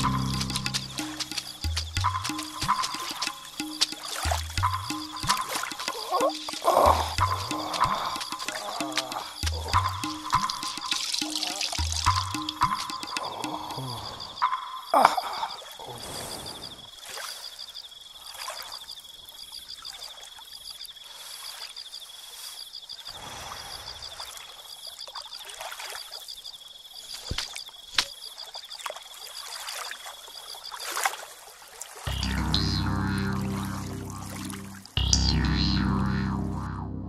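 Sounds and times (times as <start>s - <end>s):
music: 0.0s - 13.8s, 32.1s - 37.0s
stream trickling: 0.0s - 36.4s
high-pitched pulsing trill: 32.1s - 37.0s.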